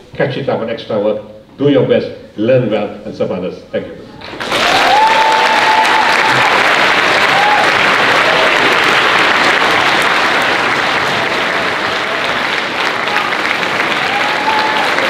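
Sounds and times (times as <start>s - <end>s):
audience applauding: 4.2s - 15.0s.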